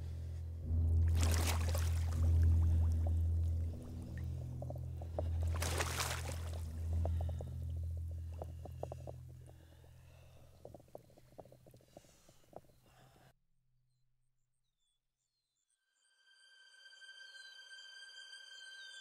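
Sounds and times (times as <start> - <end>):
steady low drone: 0.0 - 11.8
heavy splashes in muddy water: 1.0 - 4.5, 5.1 - 7.6
water drips and sloshes: 1.0 - 12.1.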